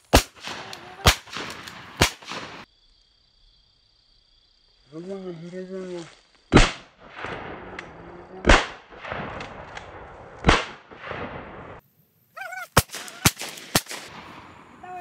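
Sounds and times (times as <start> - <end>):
short sharp cracks: 0.0 - 2.7, 12.7 - 14.4
shotgun shots echoing: 0.1 - 2.7, 6.5 - 11.8, 12.8 - 14.7.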